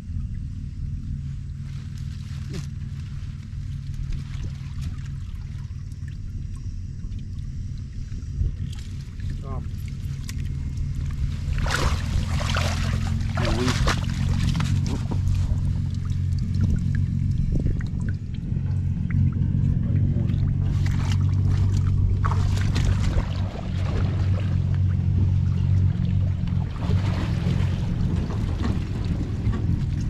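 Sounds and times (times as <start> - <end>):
low hum: 0.0 - 30.0
water splashing and sloshing: 1.3 - 30.0.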